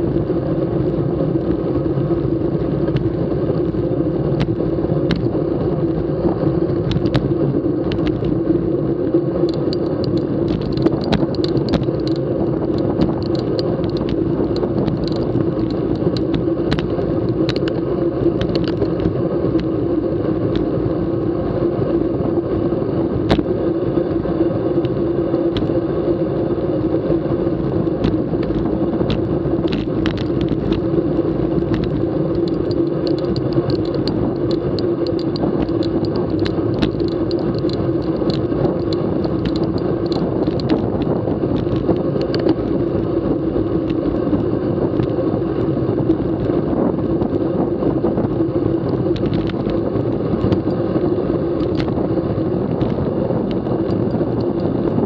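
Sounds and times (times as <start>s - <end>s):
bicycle road and wind rumble: 0.0s - 55.0s
sharp clicks and knocks: 4.4s - 5.3s, 6.8s - 8.4s, 9.4s - 19.7s, 23.3s - 23.5s, 27.8s - 43.0s, 48.9s - 50.8s, 51.6s - 52.0s, 52.7s - 54.8s.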